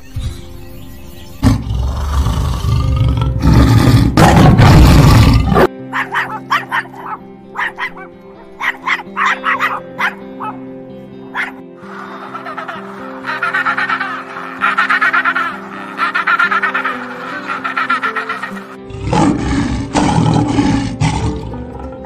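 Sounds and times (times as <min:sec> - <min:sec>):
background music: 0:00.0 - 0:22.0
tiger roaring: 0:01.4 - 0:05.7, 0:13.3 - 0:22.0
dog barking: 0:05.9 - 0:10.6, 0:11.3 - 0:11.6.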